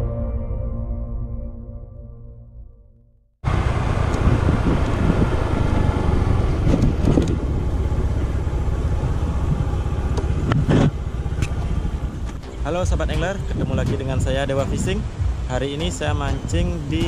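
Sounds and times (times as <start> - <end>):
intro music: 0.0 - 3.2, 12.4 - 17.0
motor scooter engine running: 3.5 - 12.5.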